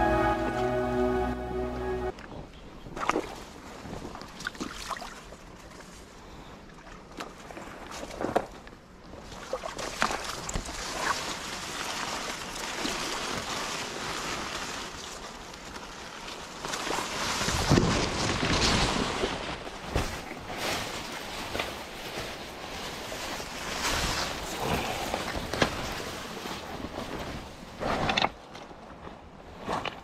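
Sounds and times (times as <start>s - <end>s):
reed leaves rustling: 10.2s - 27.8s.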